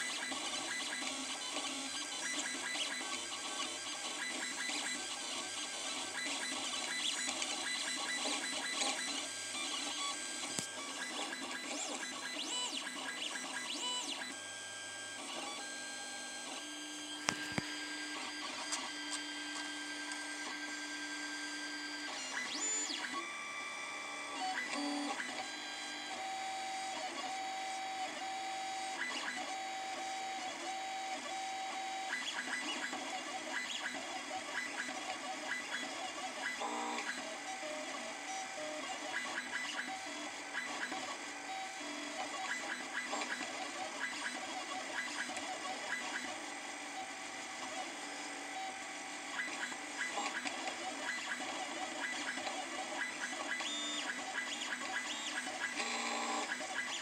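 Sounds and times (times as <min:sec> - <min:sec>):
stepper motors whirring tones: 0:00.0 - 0:14.4.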